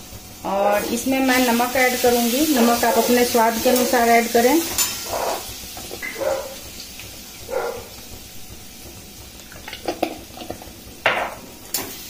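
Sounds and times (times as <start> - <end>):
spices frying in oil: 0.0 - 12.0
spatula scraping pan: 2.6 - 6.4.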